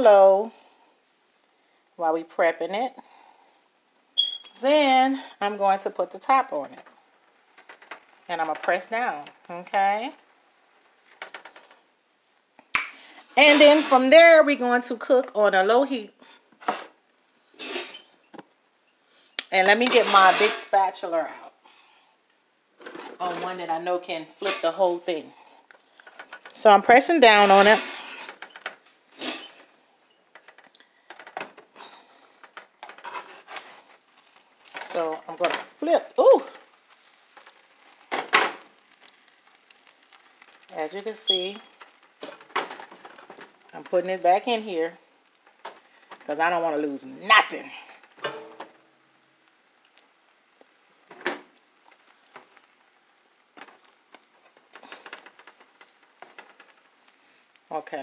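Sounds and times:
small crackles and taps: 6.7s - 9.5s, 10.1s - 11.9s, 22.2s - 23.2s, 25.5s - 26.6s, 28.0s - 47.1s, 47.7s - 48.8s, 49.4s - 57.7s
spatula scraping skillet: 13.0s - 14.2s, 17.6s - 18.1s, 19.6s - 21.0s, 26.6s - 28.5s, 31.8s - 38.1s
food frying in a skillet: 31.9s - 58.0s.

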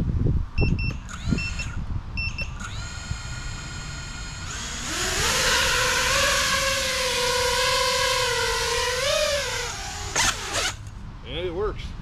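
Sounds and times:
short paired beeps: 0.6s - 2.6s
drone motors whining: 1.1s - 10.9s.

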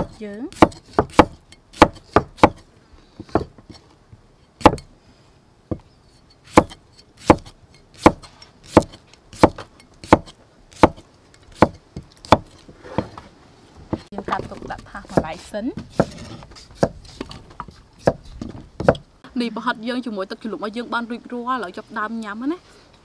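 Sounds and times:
knife chopping on wooden block: 0.0s - 2.6s, 4.6s - 4.9s, 6.5s - 11.0s, 11.6s - 13.2s, 15.1s - 19.0s.

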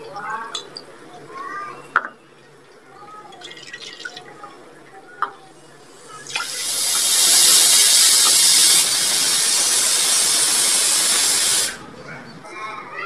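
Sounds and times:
water pouring into a pot: 3.3s - 4.4s, 6.0s - 11.8s.

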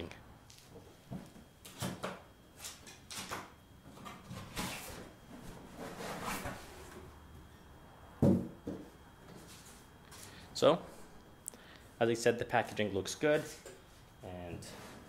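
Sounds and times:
cardboard scraping and rubbing: 5.6s - 6.8s.

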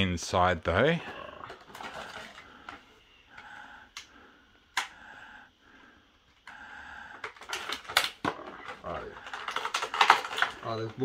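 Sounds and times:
plastic packaging rustling: 1.5s - 2.8s, 7.3s - 11.0s.

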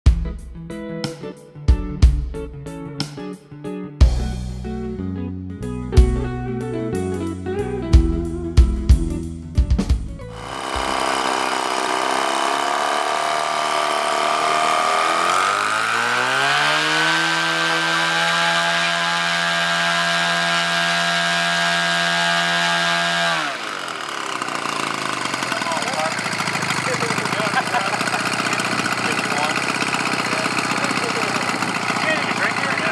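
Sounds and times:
model airplane engine revving: 10.3s - 32.9s.

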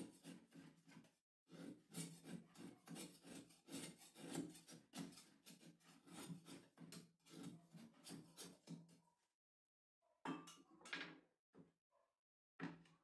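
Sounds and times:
knife cutting sugar on board: 0.0s - 9.0s.

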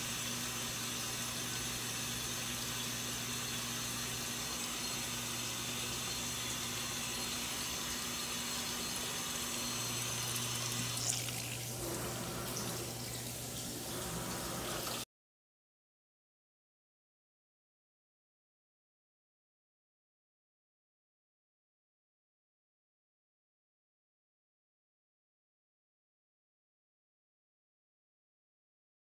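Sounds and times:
washing machine low hum: 0.0s - 15.0s
water running through hose: 0.0s - 15.0s.

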